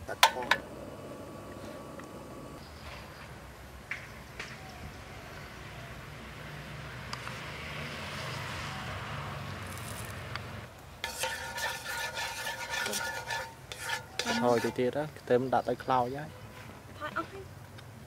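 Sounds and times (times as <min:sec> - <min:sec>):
gas stove burning: 0:00.0 - 0:02.6
oil sizzling and stirring: 0:11.0 - 0:15.0.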